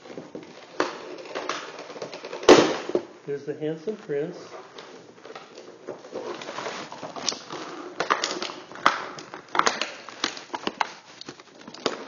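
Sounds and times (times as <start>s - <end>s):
plastic packaging crackling: 3.9s - 12.0s.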